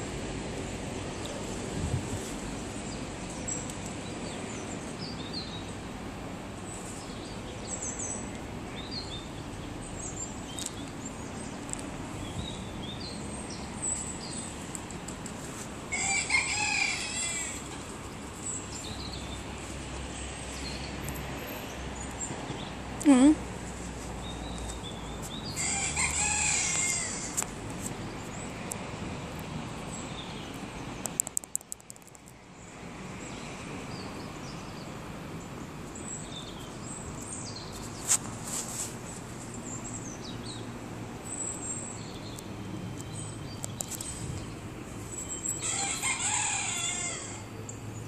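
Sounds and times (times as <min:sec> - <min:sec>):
birds chirping: 0:06.6 - 0:23.4.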